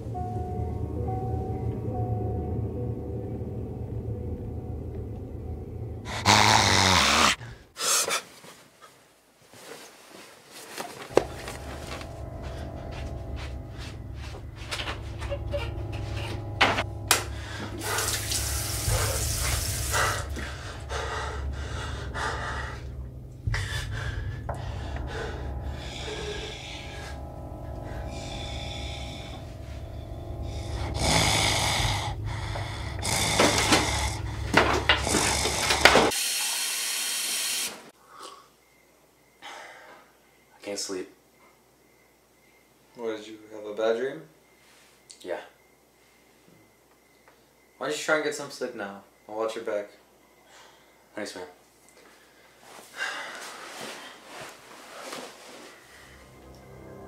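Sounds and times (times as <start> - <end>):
steady low hum: 0.0 - 6.6, 11.1 - 36.1.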